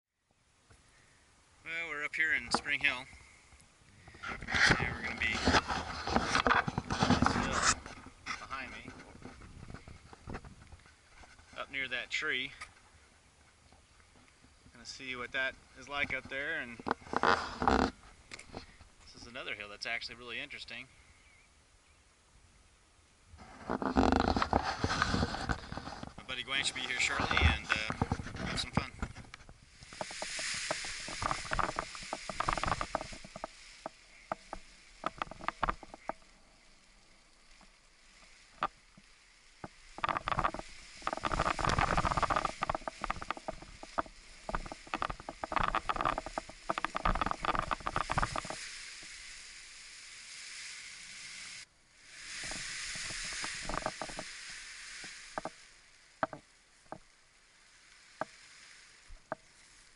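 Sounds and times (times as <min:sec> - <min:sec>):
fabric canopy crackling: 0:23.5 - 0:36.1, 0:37.6 - 0:56.8.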